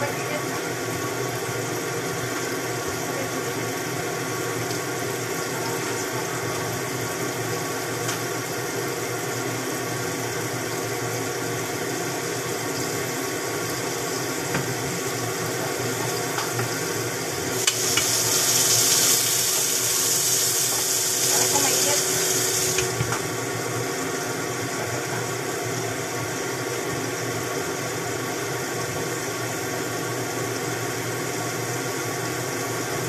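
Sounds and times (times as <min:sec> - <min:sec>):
sizzling hiss: 0:12.8 - 0:23.3
food hissing in covered pan: 0:16.1 - 0:23.2.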